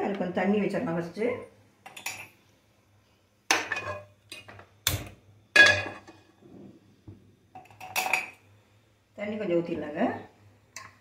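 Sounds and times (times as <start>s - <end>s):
pans and utensils clanking: 3.5s - 5.0s, 5.6s - 6.7s, 7.6s - 8.4s.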